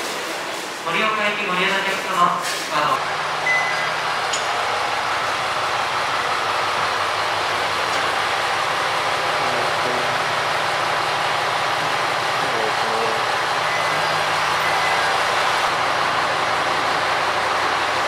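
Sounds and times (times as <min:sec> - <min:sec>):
diesel engine hum: 0:02.9 - 0:18.0.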